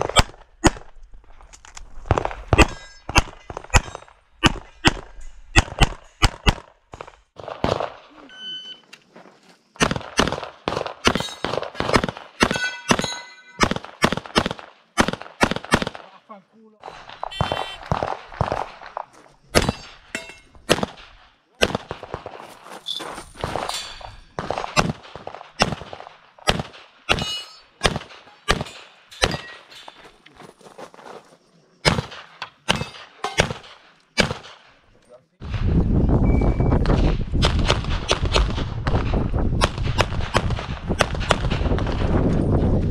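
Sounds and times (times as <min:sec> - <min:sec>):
pistol shots in rapid pairs: 0:00.0 - 0:01.0, 0:02.1 - 0:08.3, 0:09.8 - 0:16.2, 0:16.8 - 0:22.4, 0:24.3 - 0:29.6, 0:31.8 - 0:35.7, 0:36.8 - 0:42.2
short metallic ring: 0:12.5 - 0:13.6, 0:27.2 - 0:27.7.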